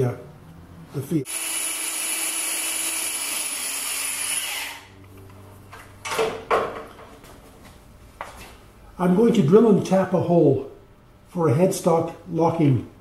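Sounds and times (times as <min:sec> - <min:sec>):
electric drill whining: 0:01.3 - 0:04.9.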